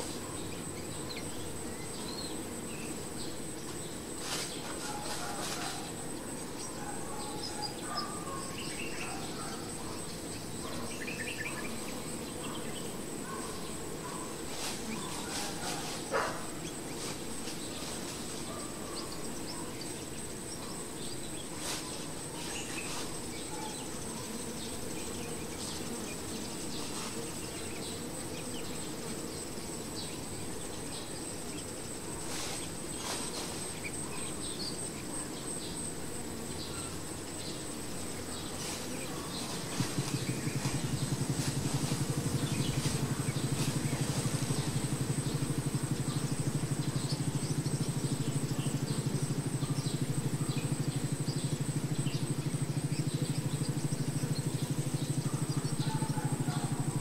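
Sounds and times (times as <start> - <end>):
honey bees humming: 0.0 - 57.0
low pulsing engine drone: 40.4 - 57.0.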